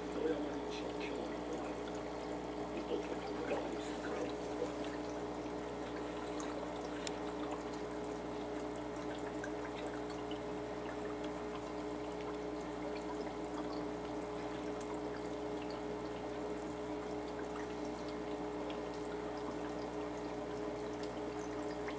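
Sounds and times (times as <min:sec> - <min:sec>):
filter hum: 0:00.0 - 0:21.9
water trickling into aquarium: 0:00.0 - 0:21.9.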